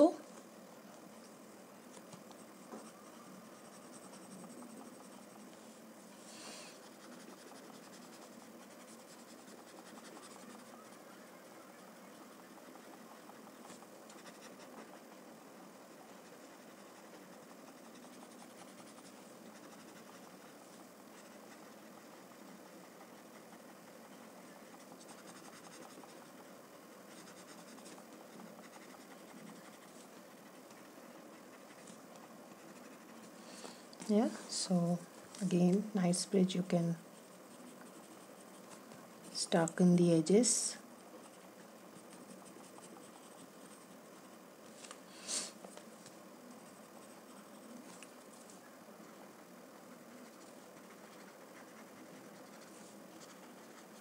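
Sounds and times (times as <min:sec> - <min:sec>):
blending stump scratching paper: 0:02.4 - 0:05.7, 0:06.7 - 0:11.0, 0:15.9 - 0:33.4, 0:36.5 - 0:44.4
blending stump rubbing paper: 0:02.7 - 0:10.8.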